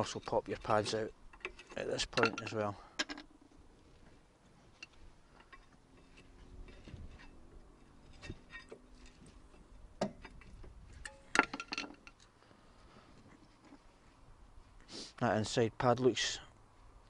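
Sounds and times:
metallic clicks and scrapes: 0:00.0 - 0:03.4, 0:04.7 - 0:12.4.

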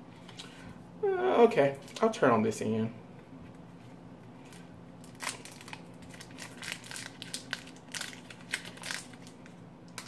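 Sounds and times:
wrapper crinkling and tearing: 0:04.5 - 0:10.0.

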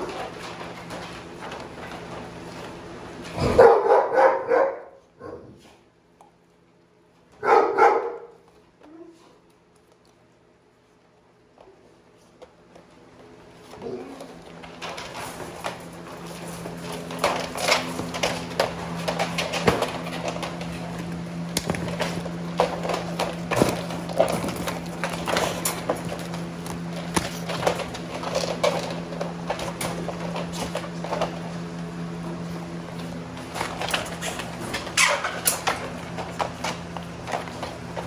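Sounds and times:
dogs rattling wire crates: 0:14.6 - 0:21.1, 0:21.7 - 0:31.4, 0:33.4 - 0:38.0.

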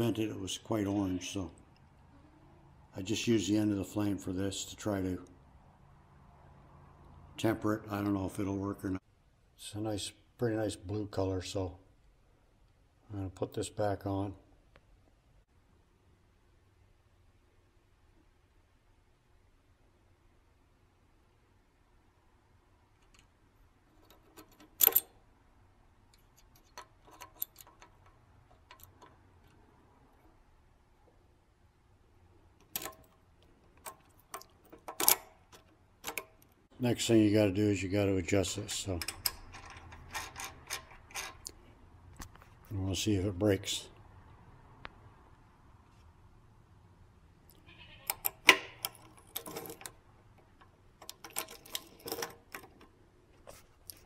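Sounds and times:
metal clicks and clinks: 0:23.9 - 0:25.2, 0:26.1 - 0:29.6, 0:32.6 - 0:36.6, 0:38.6 - 0:41.6, 0:48.1 - 0:53.0
sharp metallic clicks: 0:32.6 - 0:36.6, 0:38.5 - 0:41.6.

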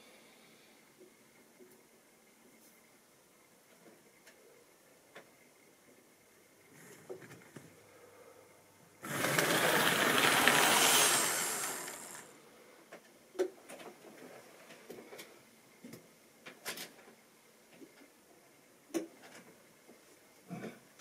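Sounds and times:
model train motor and wheels whirring: 0:09.0 - 0:12.3.

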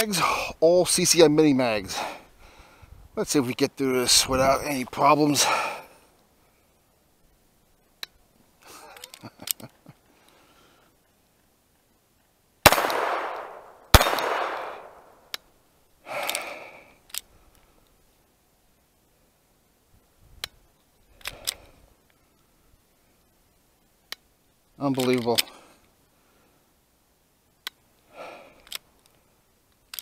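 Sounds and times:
pistol shots: 0:12.7 - 0:15.2
pistol handling clicks: 0:12.7 - 0:15.5, 0:28.6 - 0:29.1, 0:29.8 - 0:30.0.

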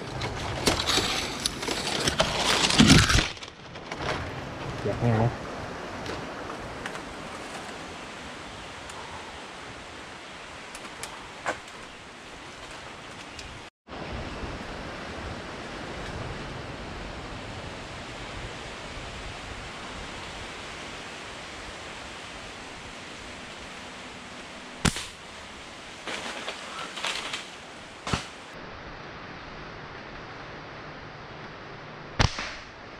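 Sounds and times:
wind rustling palm fronds: 0:00.0 - 0:32.9
sharp snap: 0:24.8 - 0:25.2, 0:32.2 - 0:32.8.

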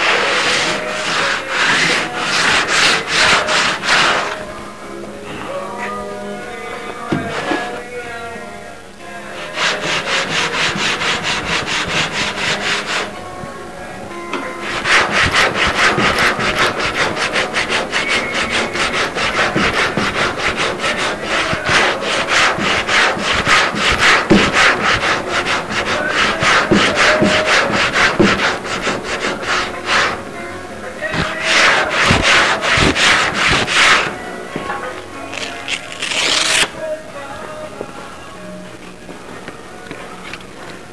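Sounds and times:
hand rubbing a surface: 0:00.0 - 0:04.5, 0:07.0 - 0:08.0, 0:09.3 - 0:13.2, 0:14.6 - 0:30.3, 0:31.0 - 0:36.8.

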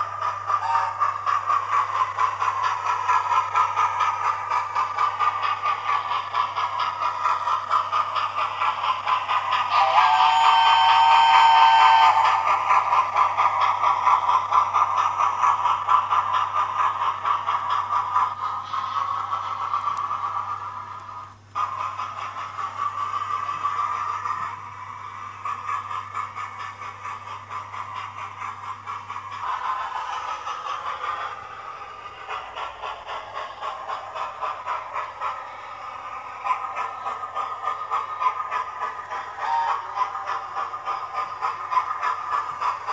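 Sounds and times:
model locomotive hum: 0:00.0 - 0:42.9
recorded steam chuffs: 0:00.0 - 0:42.9
two-note steam whistle: 0:00.6 - 0:01.0, 0:09.8 - 0:12.4, 0:39.4 - 0:39.8.

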